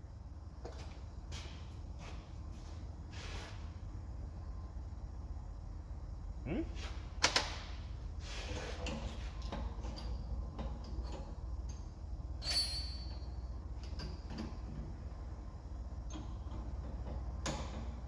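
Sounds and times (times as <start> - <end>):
steady low hum: 0.0 - 12.4, 13.0 - 18.0
ringing metal clink: 12.4 - 13.3.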